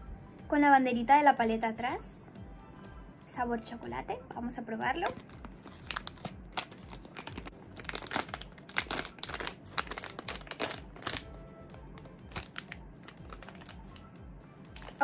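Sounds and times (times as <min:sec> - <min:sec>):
quiet background music: 0:00.0 - 0:15.0
wrapper crackling and tearing: 0:05.1 - 0:11.3, 0:12.0 - 0:14.1, 0:14.8 - 0:15.0.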